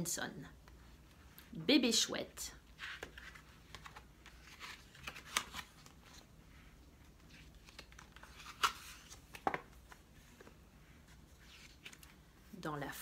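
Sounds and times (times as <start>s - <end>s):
paper rustling: 2.7s - 6.3s, 7.1s - 12.2s.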